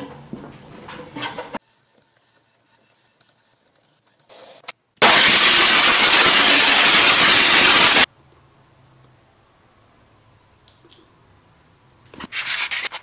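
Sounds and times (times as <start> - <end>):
water spray gun hissing: 5.0 - 8.1.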